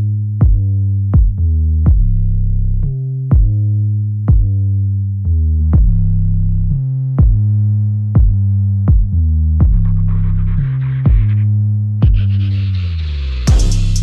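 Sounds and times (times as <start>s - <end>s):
synthesizer bass notes: 0.0s - 14.0s
drum machine kick: 0.4s - 2.3s, 3.2s - 3.7s, 4.3s - 4.6s, 5.6s - 6.2s, 7.2s - 7.6s, 8.2s - 10.1s, 11.0s - 11.4s, 12.0s - 12.4s, 13.5s - 14.0s.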